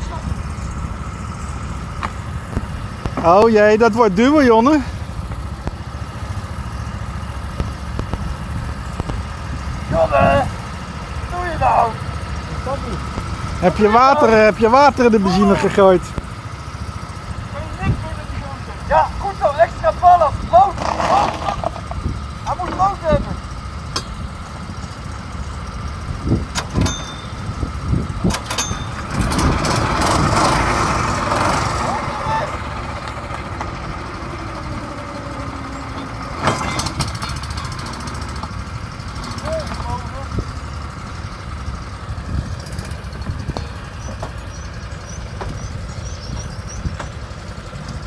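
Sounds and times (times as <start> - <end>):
go-kart engines running: 0.0 - 48.0
knocks and clicks of kart handling: 23.9 - 24.2, 26.5 - 27.4, 28.2 - 31.6, 33.0 - 33.9, 35.9 - 38.6, 43.2 - 44.5, 45.2 - 47.5.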